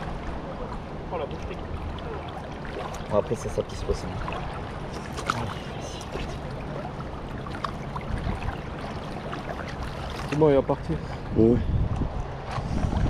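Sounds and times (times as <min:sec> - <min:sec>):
flowing river water: 0:00.0 - 0:13.0.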